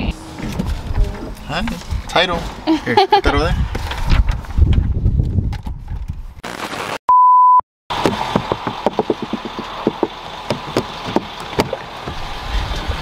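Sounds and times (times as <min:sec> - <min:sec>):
steady beep tone: 0:07.1 - 0:07.6.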